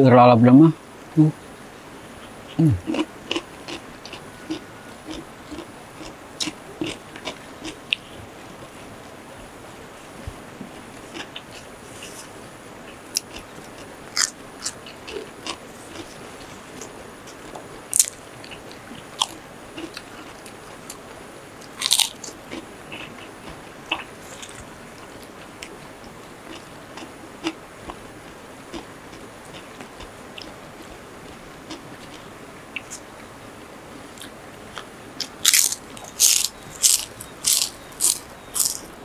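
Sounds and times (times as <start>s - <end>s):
crunchy food bites: 17.9s - 18.6s, 21.6s - 23.1s, 35.2s - 38.9s.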